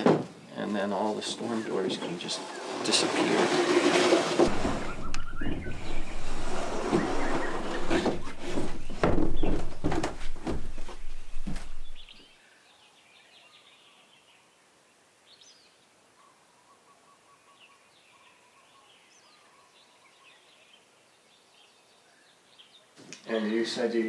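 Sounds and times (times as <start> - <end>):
wooden doors knocking and thudding: 0.0 - 0.4, 2.9 - 12.1
faint bird chirps: 4.7 - 6.2, 15.3 - 23.8
soft whistled call: 4.8 - 6.0.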